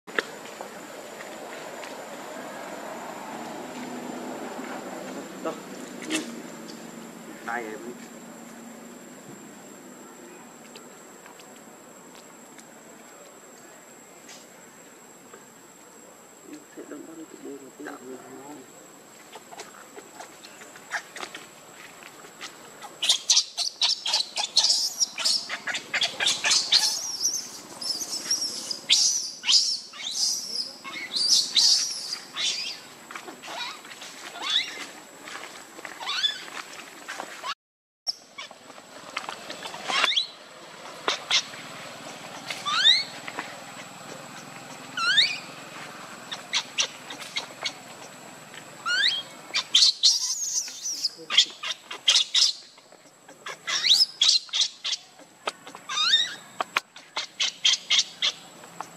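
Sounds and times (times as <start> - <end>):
baby monkey shrieking: 23.0 - 32.8, 33.4 - 34.8, 36.0 - 36.5, 41.0 - 41.5, 42.4 - 43.2, 44.7 - 45.5, 48.8 - 52.6, 53.4 - 56.4, 57.0 - 58.4.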